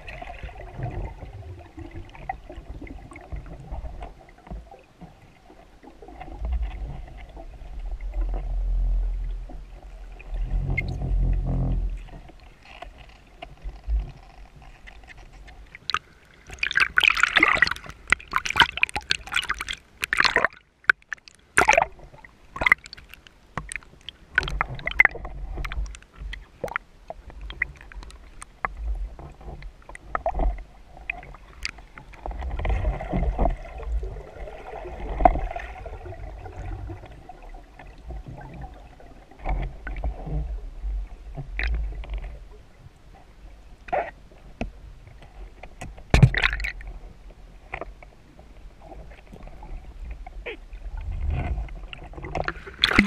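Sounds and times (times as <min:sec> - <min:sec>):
low rumbling water movement: 0:00.0 - 0:53.0
underwater splashing and bubbles: 0:00.0 - 0:53.0
sharp underwater clicks and knocks: 0:10.5 - 0:33.6, 0:43.9 - 0:47.0, 0:51.0 - 0:53.0.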